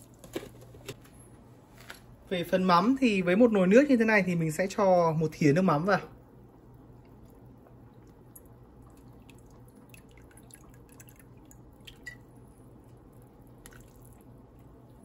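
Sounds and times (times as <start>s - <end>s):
low steady hum: 0.0s - 15.0s
broth simmering with bubbles popping: 6.8s - 15.0s.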